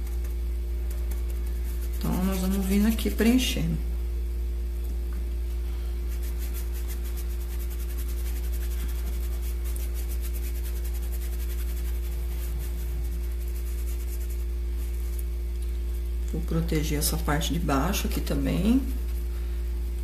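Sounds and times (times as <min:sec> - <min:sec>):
low electrical hum: 0:00.0 - 0:20.0
paintbrush strokes on fabric: 0:00.9 - 0:03.4, 0:06.0 - 0:15.3.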